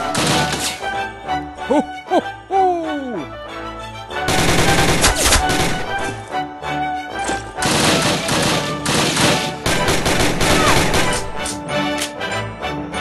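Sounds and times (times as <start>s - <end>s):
gunfire bursts: 0.0s - 0.8s, 4.3s - 6.2s, 7.6s - 11.4s
film score music: 0.0s - 13.0s.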